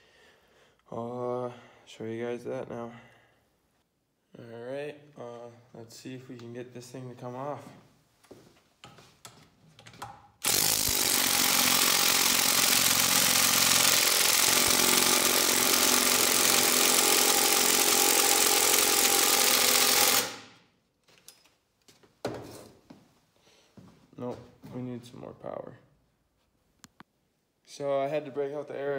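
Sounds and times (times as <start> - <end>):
impact wrench hammering: 10.4 - 20.6.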